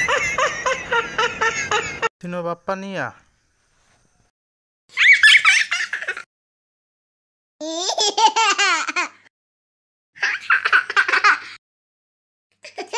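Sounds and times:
high-pitched laughter: 0.0s - 2.1s, 4.9s - 6.3s.

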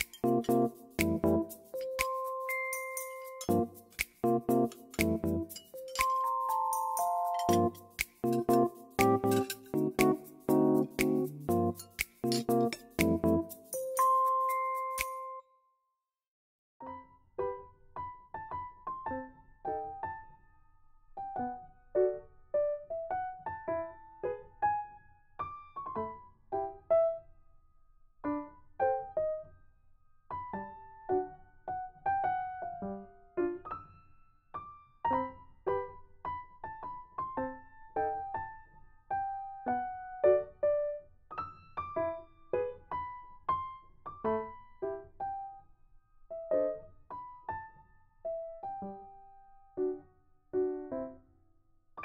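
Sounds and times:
gentle piano notes: 0.0s - 15.3s.

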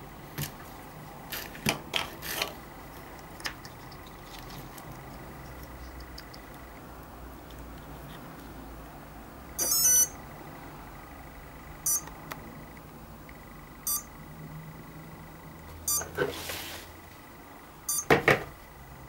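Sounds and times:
motor controller start-up tones: 9.5s - 10.2s, 11.1s - 12.8s
short electronic beeps: 9.6s - 10.2s, 11.8s - 12.1s, 13.8s - 14.1s, 15.9s - 16.1s, 17.9s - 18.1s.

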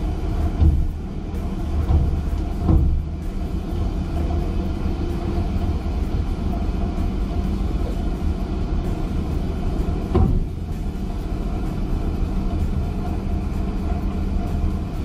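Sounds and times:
deck machinery humming: 0.0s - 15.0s
single thump: 10.1s - 10.5s.

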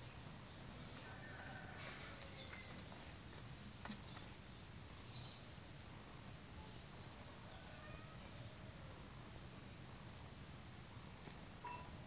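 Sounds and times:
outdoor background hiss: 0.0s - 12.0s.

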